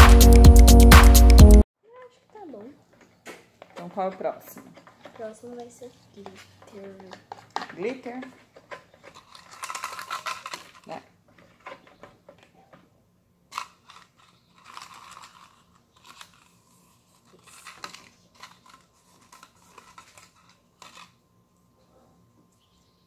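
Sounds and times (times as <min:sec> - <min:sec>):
paper and cups rustling: 0:02.3 - 0:21.3
plastic spoon stirring slime: 0:03.6 - 0:12.8, 0:13.5 - 0:21.2.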